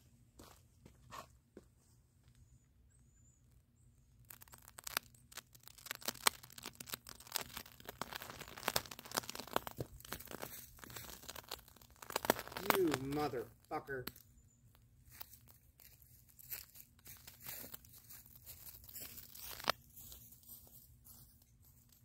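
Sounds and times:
crackling pops and sizzle: 4.2s - 19.8s.

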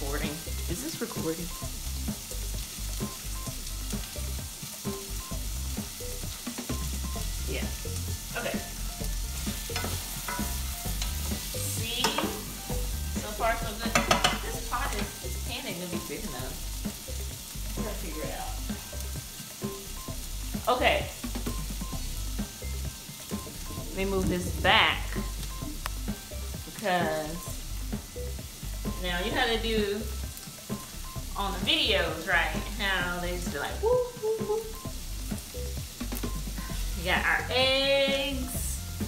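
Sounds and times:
vegetables sizzling in a frying pan: 0.0s - 39.0s
spatula scraping a pan: 9.3s - 12.6s.

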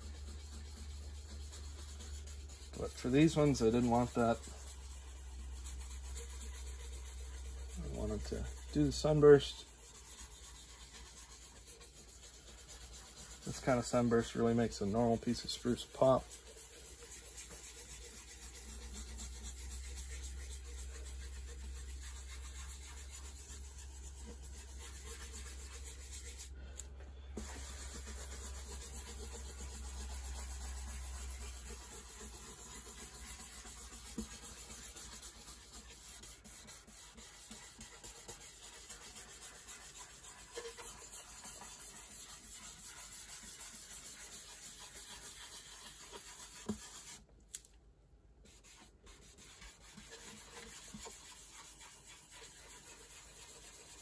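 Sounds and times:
cloth pad scrubbing guitar top: 0.0s - 26.5s, 27.4s - 47.2s.

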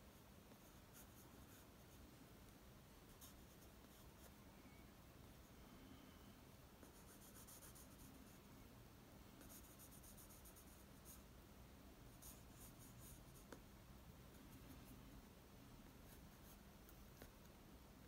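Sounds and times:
pencil scratching on paper: 3.1s - 4.3s, 6.8s - 8.3s, 9.4s - 11.2s, 12.2s - 13.6s.

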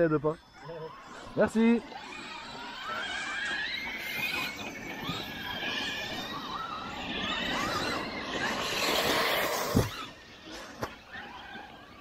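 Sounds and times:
electric motors whining: 0.0s - 12.0s
rough rushing noise: 1.2s - 10.8s.

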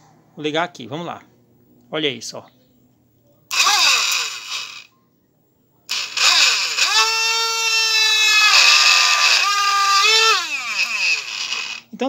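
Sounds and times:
small motor whining: 3.5s - 4.9s, 5.9s - 11.9s.

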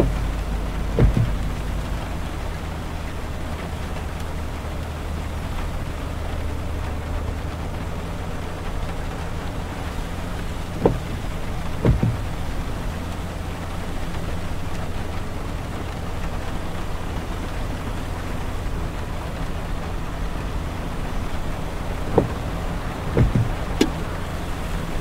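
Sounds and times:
short thumps: 0.0s - 2.1s, 10.4s - 12.6s, 22.0s - 24.2s
engine and tyres on wet road: 0.0s - 25.0s
rain on windshield and roof: 0.0s - 25.0s.

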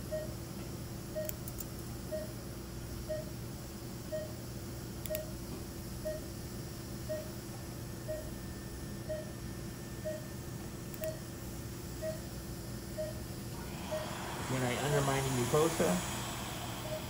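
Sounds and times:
patient monitor pulse beep: 0.0s - 0.4s, 1.1s - 1.4s, 2.1s - 2.4s, 3.0s - 3.4s, 4.1s - 4.4s, 5.1s - 5.4s, 6.0s - 6.4s, 7.0s - 7.4s, 8.0s - 8.4s, 9.0s - 9.4s, 10.0s - 10.4s, 11.0s - 11.3s, 12.0s - 12.3s, 12.9s - 13.2s, 13.9s - 14.2s, 16.8s - 17.0s
steady equipment hum: 0.0s - 17.0s.

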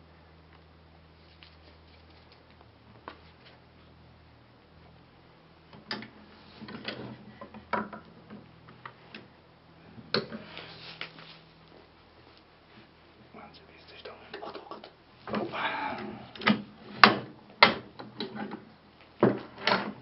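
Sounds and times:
wooden knocks and clatter: 5.8s - 9.0s, 16.4s - 20.0s.

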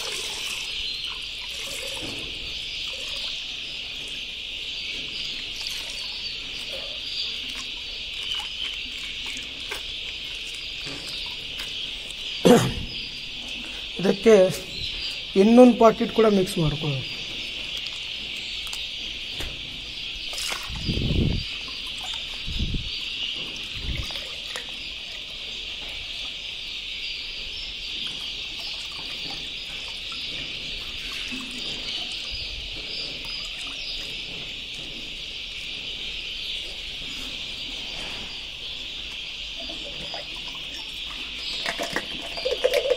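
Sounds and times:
milk trickling into water: 0.0s - 2.1s, 5.4s - 12.2s, 20.3s - 20.8s, 21.7s - 22.4s, 24.0s - 25.3s, 39.6s - 42.9s
high-pitched chirping chorus: 0.0s - 42.9s.

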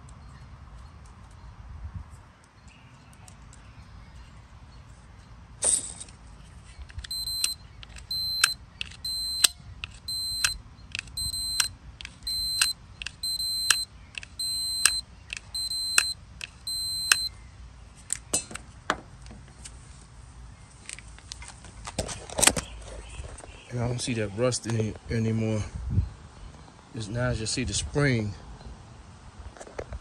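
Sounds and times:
switch plunger clicks: 7.0s - 17.3s
multimeter continuity beeps: 7.0s - 17.4s.

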